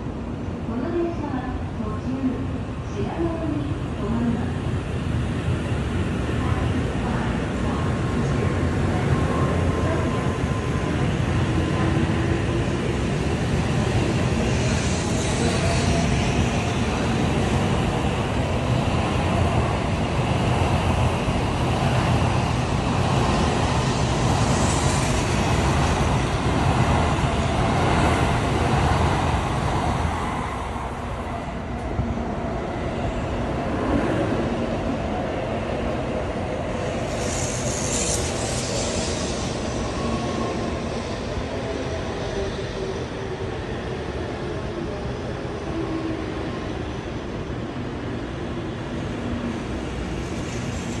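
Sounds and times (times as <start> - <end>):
trains rumbling past: 0.0 - 51.0
high hiss: 22.5 - 29.6, 36.7 - 42.2.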